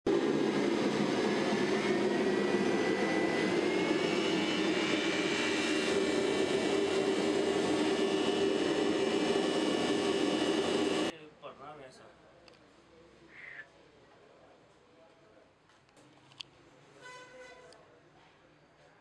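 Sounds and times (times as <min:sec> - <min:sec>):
air blower rushing: 0:00.1 - 0:11.1.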